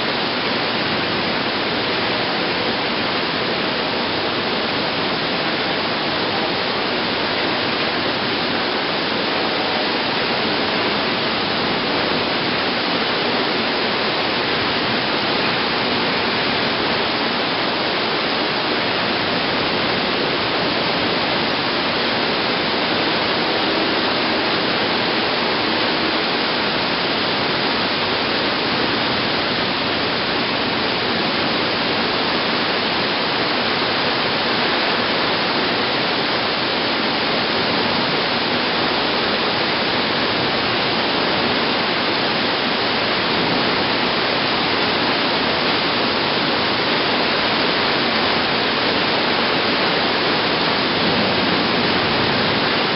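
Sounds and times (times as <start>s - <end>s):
torrential rain pouring: 0.0s - 52.9s.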